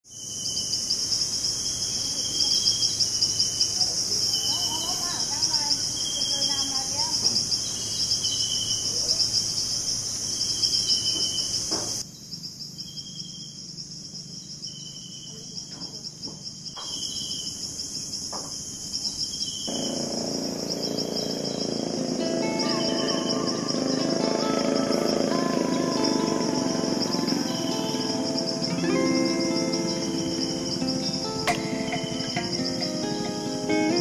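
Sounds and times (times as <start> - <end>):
insects trilling: 0.0 - 34.0
short repeated insect calls: 0.1 - 34.0
motorboat engine drone: 19.7 - 34.0.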